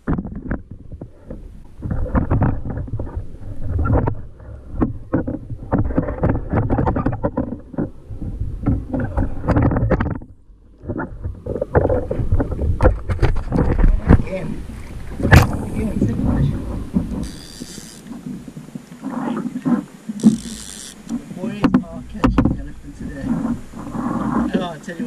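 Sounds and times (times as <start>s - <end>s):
water sloshing against kayak: 0.0s - 25.0s
wind on microphone: 0.0s - 25.0s
knocks on board: 21.6s - 22.7s.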